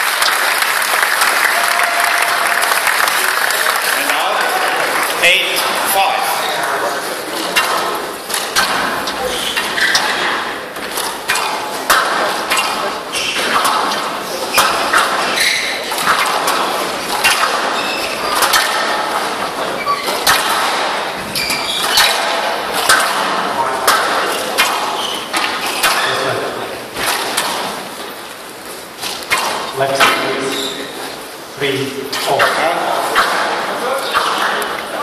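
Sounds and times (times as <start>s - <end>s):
crowd voices: 0.0s - 35.0s
squash ball hitting rackets and walls: 7.2s - 31.2s, 32.0s - 35.0s.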